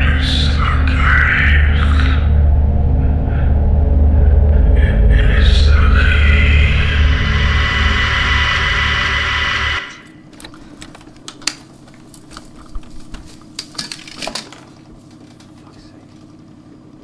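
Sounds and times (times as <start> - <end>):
loud droning with thin whistle: 0.0 - 10.2
low hum: 0.0 - 11.3
magnetic tape crinkling: 10.2 - 17.0.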